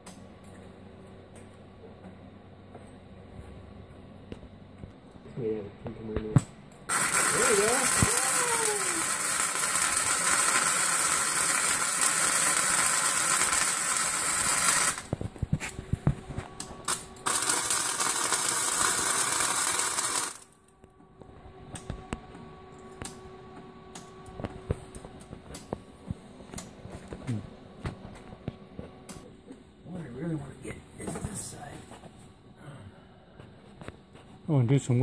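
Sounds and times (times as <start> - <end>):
welding arc crackling and hissing: 6.9 - 16.1, 16.9 - 20.6.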